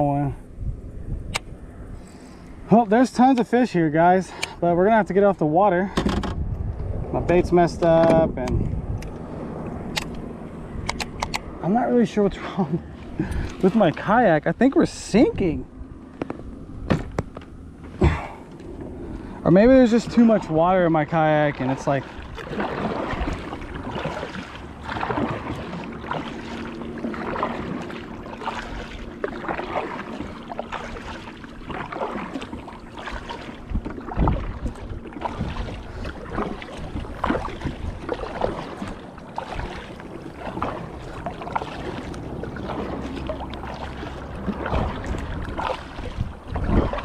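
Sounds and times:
paddle splashing in water: 0:12.3 - 0:14.4, 0:16.1 - 0:47.0.

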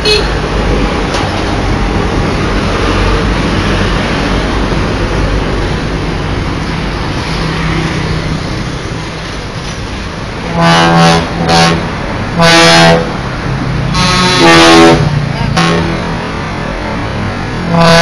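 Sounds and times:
bus horn blasts: 0:00.0 - 0:00.4, 0:10.4 - 0:13.1, 0:13.9 - 0:16.0, 0:17.6 - 0:18.0
trucks passing: 0:00.0 - 0:18.0.

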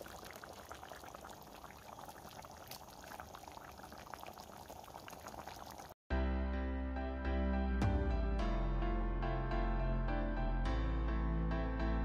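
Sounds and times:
curry bubbling in a pot: 0:00.0 - 0:06.0.

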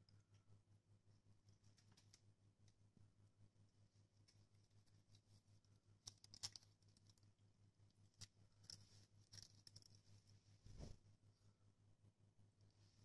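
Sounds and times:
soft rustle: 0:08.6 - 0:11.5.

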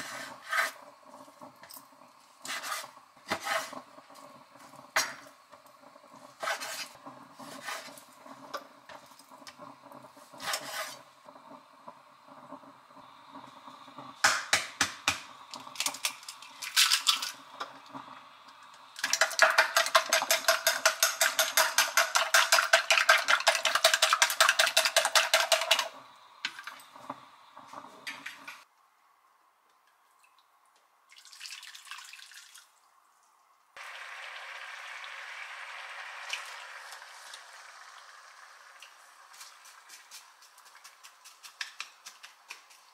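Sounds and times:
water bubbling in frying pan: 0:02.8 - 0:14.2, 0:33.8 - 0:41.0
chopsticks beating egg in bowl: 0:19.0 - 0:26.0, 0:39.4 - 0:42.9.

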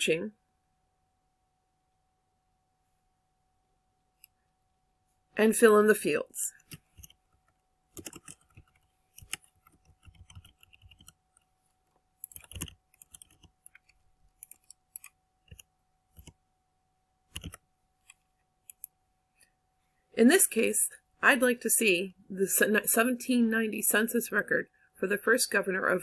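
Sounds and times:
keyboard typing: 0:06.6 - 0:16.4, 0:17.3 - 0:18.9
loud keyboard clicks: 0:07.9 - 0:11.2, 0:12.2 - 0:15.6, 0:17.3 - 0:17.6.

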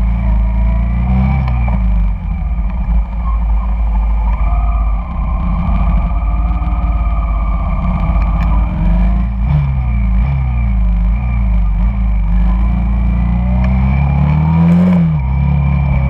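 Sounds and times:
motorcycle engine revving: 0:00.0 - 0:16.0
scooters and motorbikes passing: 0:02.3 - 0:13.2.

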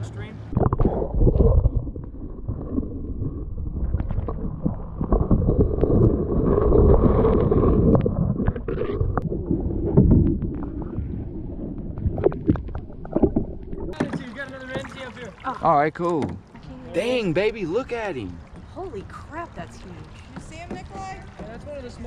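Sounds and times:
muffled underwater rushing: 0:00.5 - 0:15.6.

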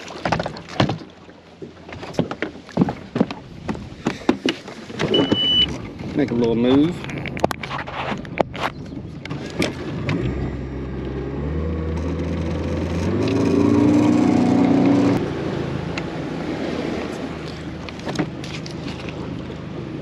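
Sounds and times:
outboard motor throttling up: 0:09.1 - 0:20.0.

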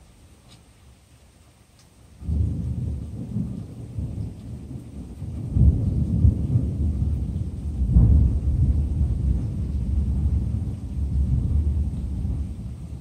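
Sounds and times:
rolling thunder: 0:02.2 - 0:13.0.

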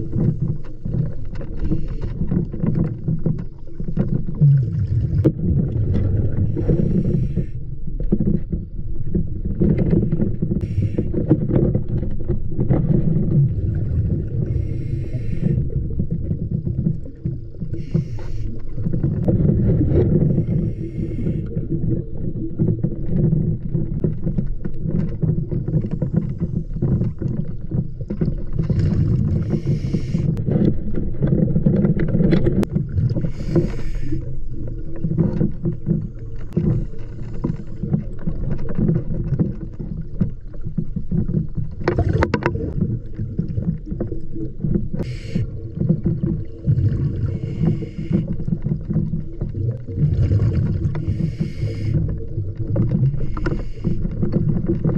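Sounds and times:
low underwater rumble: 0:00.0 - 0:54.9
hissing bubbles: 0:04.3 - 0:07.6, 0:10.6 - 0:11.3, 0:13.1 - 0:22.8, 0:28.6 - 0:30.4, 0:32.6 - 0:38.4, 0:41.8 - 0:54.9.

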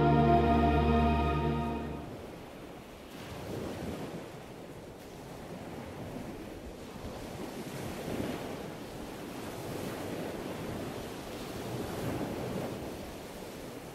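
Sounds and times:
ocean surf waves: 0:00.0 - 0:04.2.

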